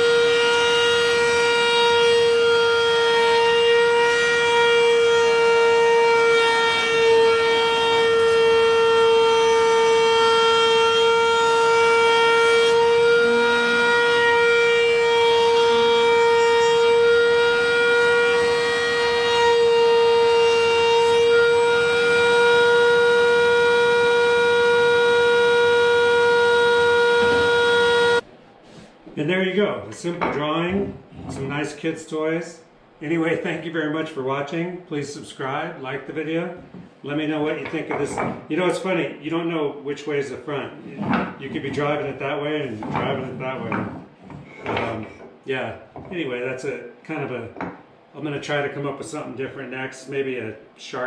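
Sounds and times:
router whining while cutting wood: 23.0s - 28.2s.

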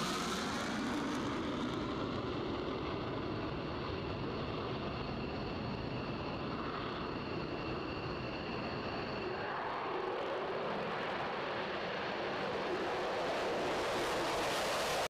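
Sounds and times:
jet engines roaring: 0.0s - 15.0s.

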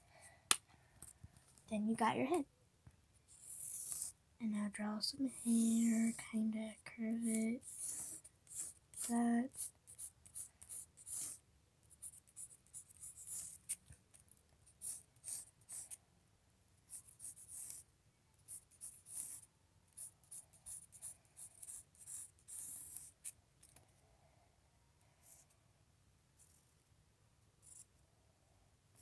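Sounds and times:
pencil scratching on paper: 3.3s - 4.2s, 5.3s - 6.7s, 7.3s - 13.8s, 14.7s - 16.0s, 16.9s - 17.8s, 18.4s - 23.4s, 25.2s - 25.6s, 27.6s - 27.9s.

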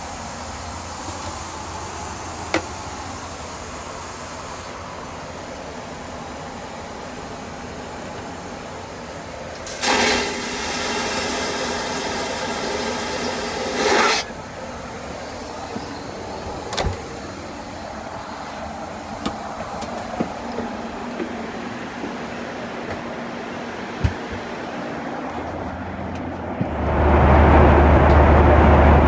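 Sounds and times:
cabin air hum: 0.0s - 29.0s
vacuum toilet flushing: 9.6s - 14.3s.

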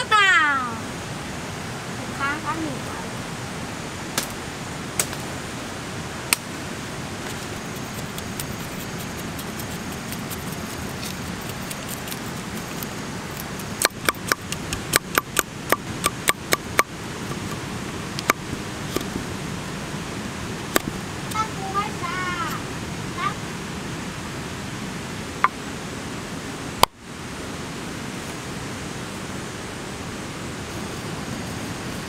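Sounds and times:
outdoor hiss: 0.0s - 32.0s
knife chopping wood: 7.4s - 17.5s.

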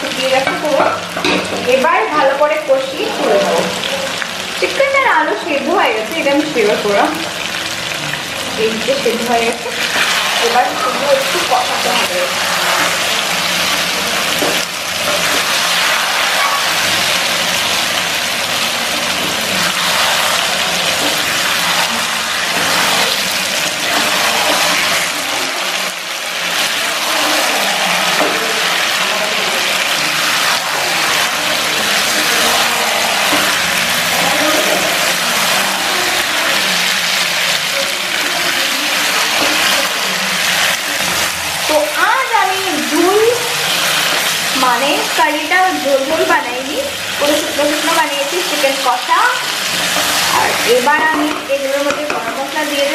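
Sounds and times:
curry sizzling in a frying pan: 0.0s - 52.9s
wooden spatula scraping a pan: 9.6s - 17.3s, 19.2s - 25.9s, 26.5s - 36.7s, 49.5s - 52.9s.

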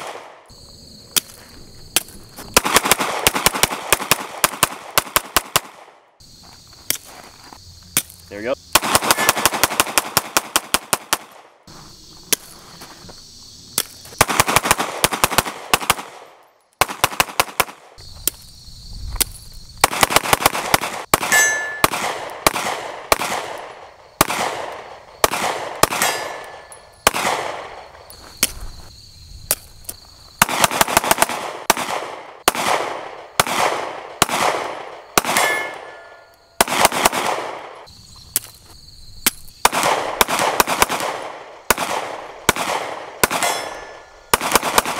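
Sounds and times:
pistol shots echoing: 0.0s - 0.5s, 2.5s - 6.1s, 8.7s - 11.5s, 14.2s - 18.0s, 19.8s - 27.9s, 30.4s - 37.9s, 39.6s - 44.9s
metallic pings: 21.3s - 21.9s, 35.4s - 36.4s.

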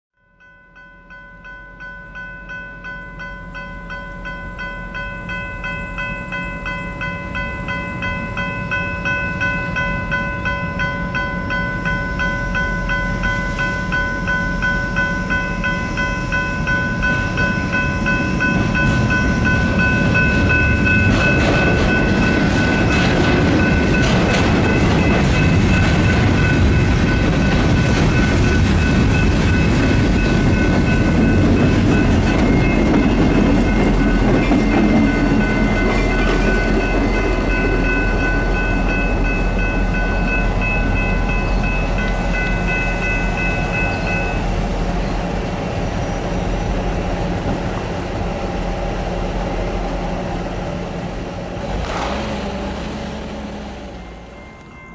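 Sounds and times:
crossing bell ringing: 0.2s - 47.3s, 53.2s - 54.9s
freight train rumble: 0.4s - 54.9s
wheels clattering on rail joints: 7.1s - 44.4s, 50.2s - 54.9s.

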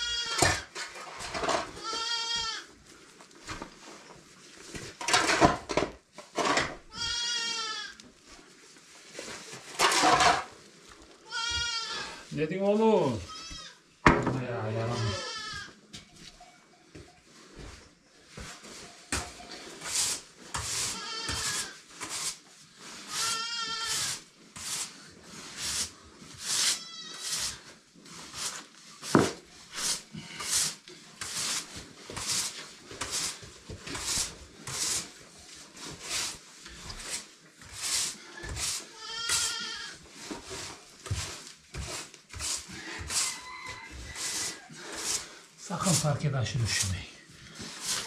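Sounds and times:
goat kids bleating: 0.0s - 0.6s, 1.8s - 2.7s, 6.9s - 8.0s, 11.2s - 12.2s, 13.2s - 13.8s, 14.8s - 15.8s, 20.9s - 21.8s, 23.1s - 24.1s, 26.8s - 27.2s, 38.9s - 40.0s
rough rustling strokes: 17.3s - 48.0s.

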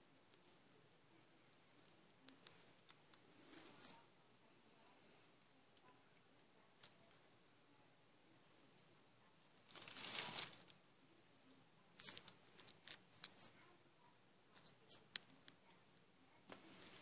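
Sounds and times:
rustling: 1.3s - 4.2s, 9.6s - 10.9s, 11.9s - 13.7s, 16.4s - 17.0s.

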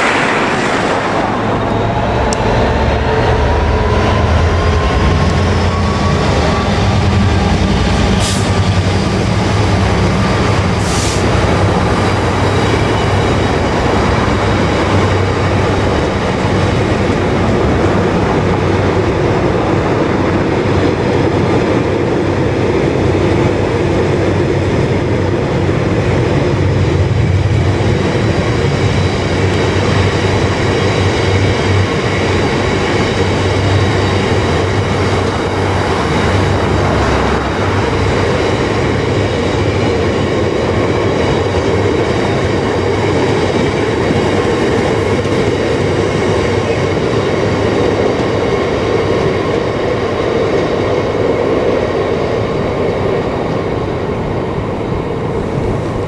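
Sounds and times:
train wheels on rails: 0.0s - 56.0s.

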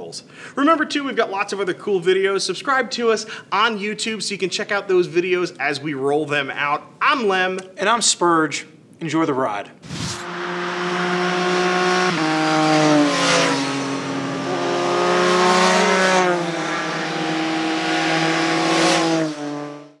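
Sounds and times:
motorcycles riding past: 10.2s - 19.9s.

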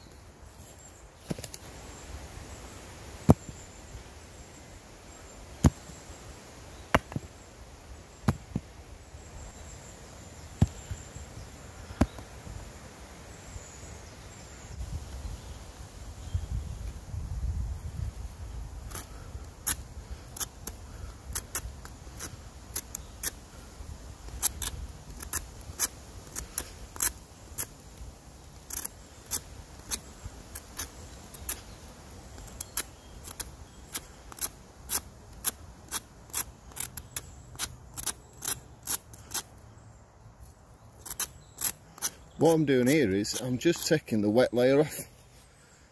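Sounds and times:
knife scraping wood: 18.9s - 23.4s, 24.3s - 27.8s, 28.6s - 39.5s, 41.0s - 43.9s.

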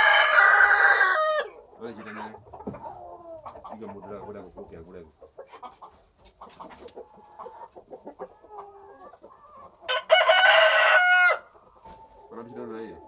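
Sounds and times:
rooster crowing: 0.0s - 1.5s, 9.9s - 11.5s
chickens clucking: 0.0s - 13.0s.

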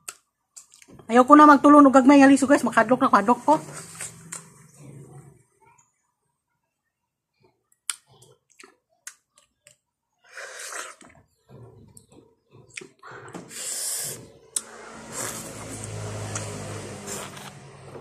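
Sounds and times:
wet mouth clicks and smacks: 7.8s - 9.8s
sucking noises: 13.4s - 17.9s.

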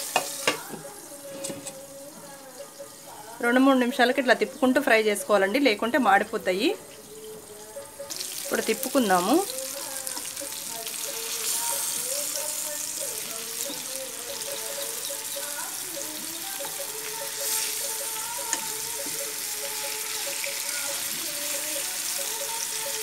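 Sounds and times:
chicken sizzling in frying pan: 0.0s - 3.3s, 8.1s - 23.0s
spatula turning meat: 8.1s - 23.0s.

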